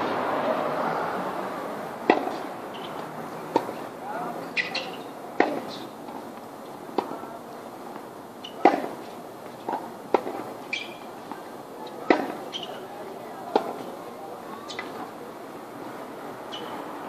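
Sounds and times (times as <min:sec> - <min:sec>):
tennis ball hit and bouncing: 0:02.0 - 0:07.2, 0:07.9 - 0:13.9, 0:14.7 - 0:15.1.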